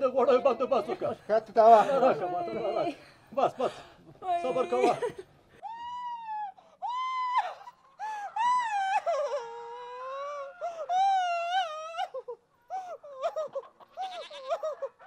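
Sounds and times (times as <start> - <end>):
woman wailing and moaning: 4.2 - 14.9.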